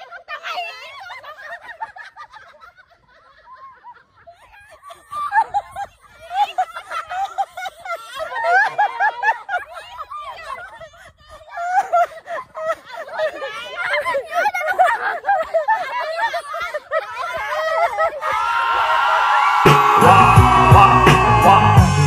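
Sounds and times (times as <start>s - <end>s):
women laughing: 0.0s - 21.8s.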